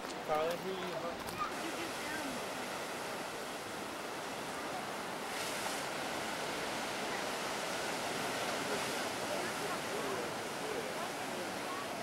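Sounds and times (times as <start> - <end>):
surf breaking on rocky shore: 0.1 - 12.0
hiss of spray: 5.3 - 6.9.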